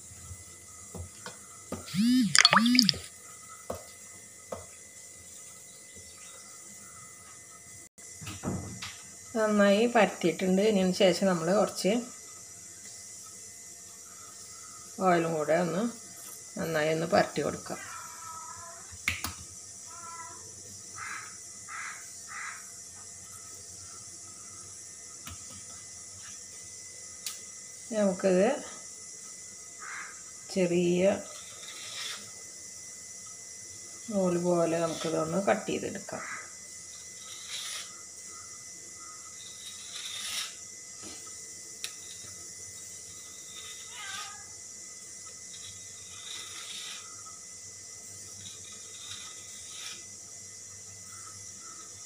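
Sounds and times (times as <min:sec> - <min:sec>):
knife scraping through dough: 0:31.3 - 0:32.4, 0:37.0 - 0:38.0, 0:39.3 - 0:40.6, 0:43.0 - 0:44.2, 0:45.5 - 0:47.3, 0:48.3 - 0:50.1.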